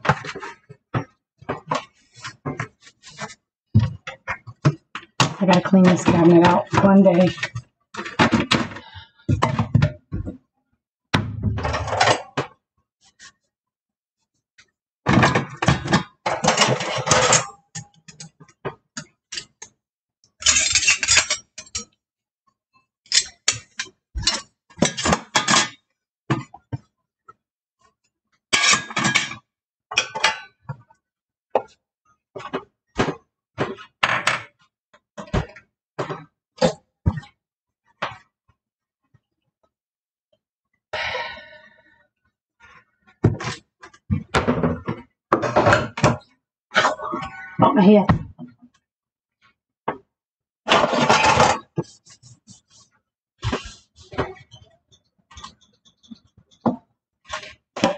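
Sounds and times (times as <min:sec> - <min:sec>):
dishes and utensils clattering: 0:15.1 - 0:18.3, 0:20.4 - 0:21.9, 0:28.6 - 0:30.6, 0:50.7 - 0:52.1.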